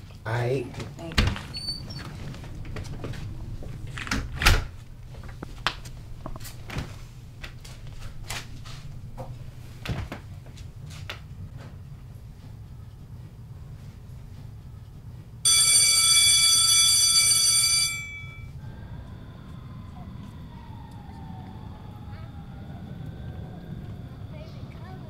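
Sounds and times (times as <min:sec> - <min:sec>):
low steady hum: 0:00.0 - 0:16.7
door shutting: 0:00.8 - 0:05.4.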